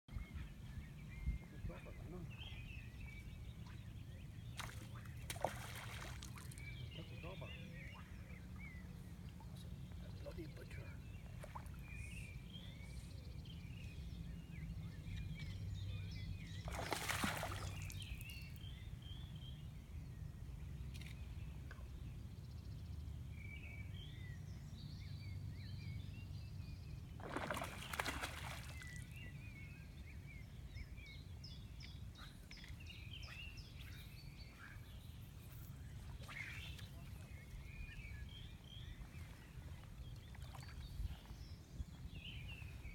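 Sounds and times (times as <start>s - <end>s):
wind rumble on microphone: 0.1s - 4.4s, 37.2s - 42.9s
small birds chirping: 0.1s - 42.9s.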